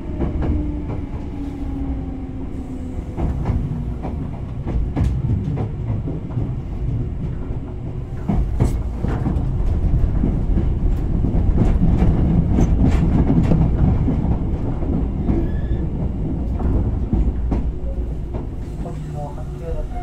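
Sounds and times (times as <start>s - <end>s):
electric train rumbling: 0.0s - 20.0s
faint squeal: 15.3s - 15.9s.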